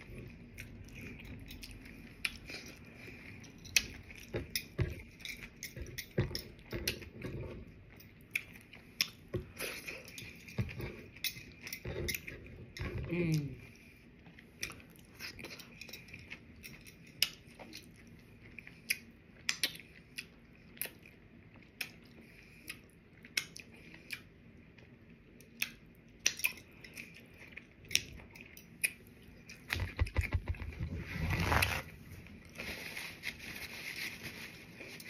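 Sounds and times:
wet mouth eating sounds: 6.6s - 30.6s.

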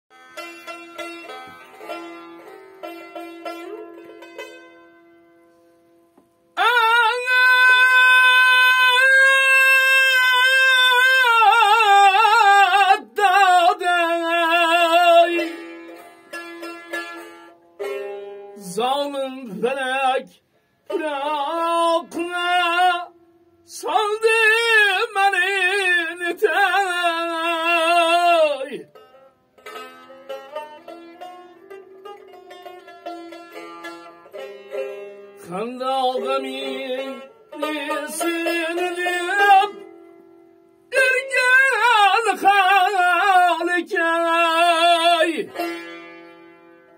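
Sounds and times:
plucked lute: 0.1s - 46.9s
man singing with vibrato: 6.6s - 16.0s, 18.6s - 29.1s, 34.8s - 40.2s, 40.8s - 46.0s.

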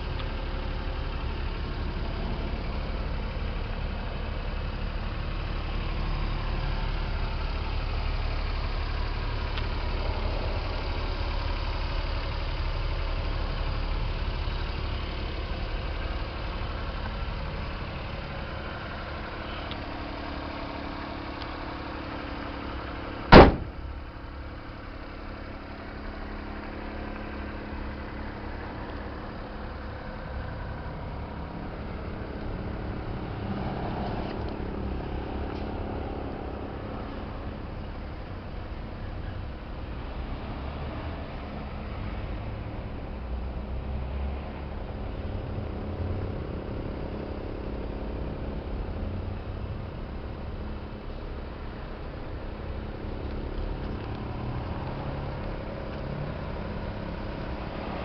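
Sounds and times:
small engine idling: 0.0s - 43.8s
cab door slamming: 23.3s - 23.9s.

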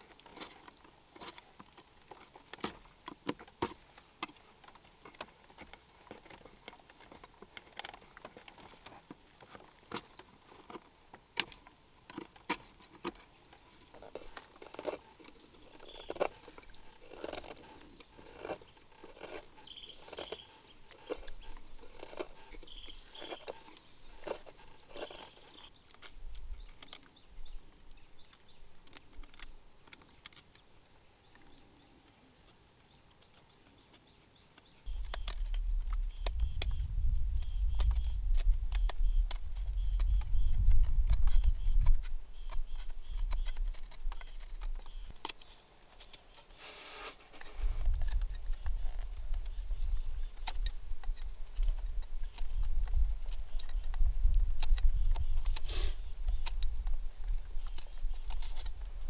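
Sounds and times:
knife shaving wood: 37.4s - 59.0s.

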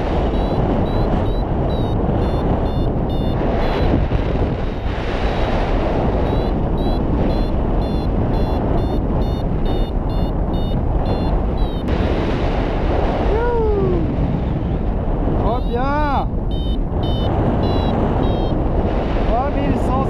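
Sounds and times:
wind rushing over microphone: 0.0s - 20.0s
variometer beeping in short pulses: 0.3s - 4.0s, 6.2s - 11.9s, 16.5s - 18.6s.

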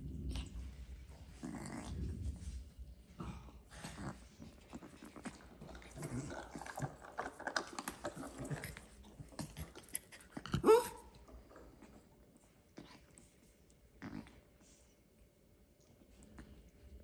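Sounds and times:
puppies chewing rope toy: 3.4s - 14.4s.

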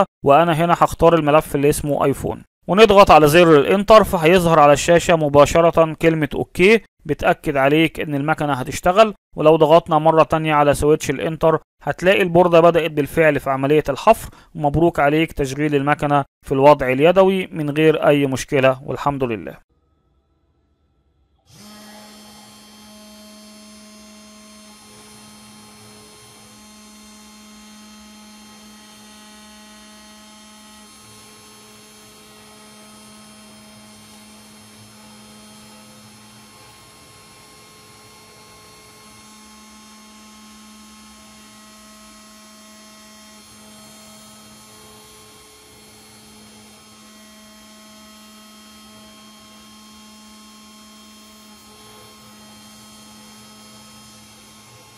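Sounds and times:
spindle motor humming: 21.5s - 54.9s
stepper motor tones: 21.5s - 54.9s.

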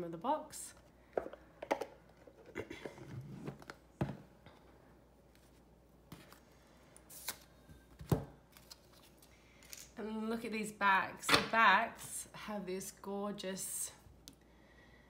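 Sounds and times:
cards rustling: 8.5s - 9.9s.

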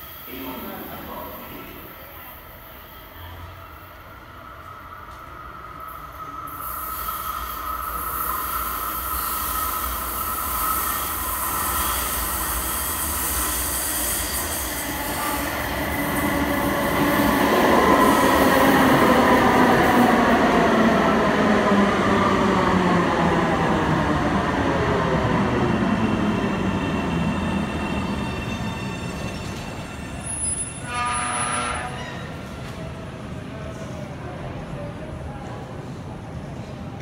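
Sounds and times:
falling tones of slowing train: 0.0s - 37.0s
light-rail train approaching: 0.0s - 37.0s
train wheel squeal: 6.5s - 15.6s, 26.0s - 32.5s.

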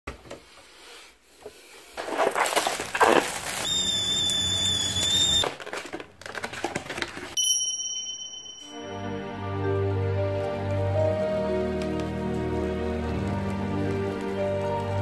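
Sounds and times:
paper lid crinkling: 2.0s - 7.4s
kettle whistling: 3.6s - 5.5s.

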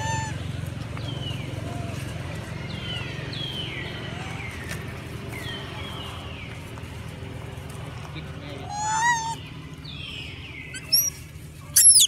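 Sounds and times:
birds calling with falling whistles: 8.7s - 12.0s.

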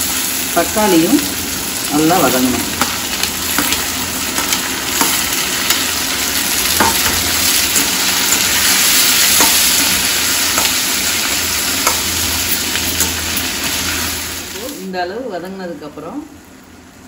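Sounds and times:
vegetables sizzling in oil: 0.0s - 17.0s
metal spoon clinking on pan: 9.2s - 10.8s, 11.8s - 13.4s.

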